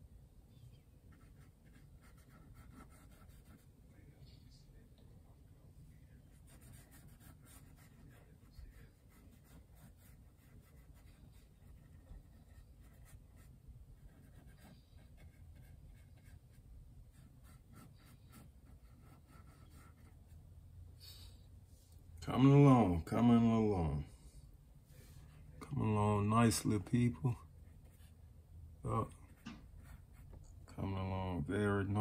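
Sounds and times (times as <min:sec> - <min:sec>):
low room hum: 0:00.0 - 0:32.0
paintbrush scratching on canvas: 0:01.1 - 0:03.8, 0:06.2 - 0:20.4.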